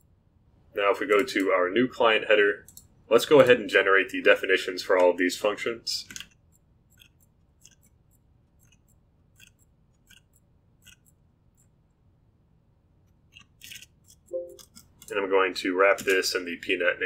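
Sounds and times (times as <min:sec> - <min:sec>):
computer mouse clicks: 0:06.1 - 0:11.8, 0:13.1 - 0:15.2.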